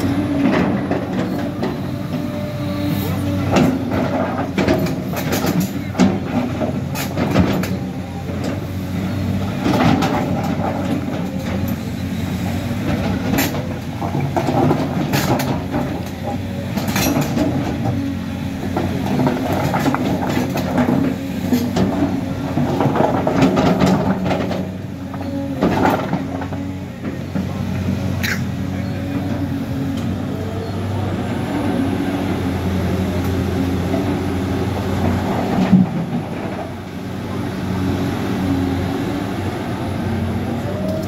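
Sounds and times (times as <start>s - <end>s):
excavator diesel engine running: 0.0s - 41.0s.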